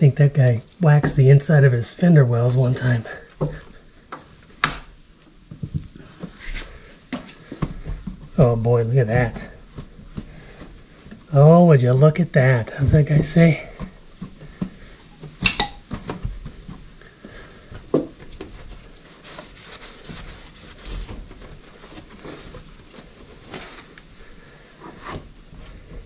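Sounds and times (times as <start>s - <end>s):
towel rubbing on sheet metal: 18.8s - 26.0s.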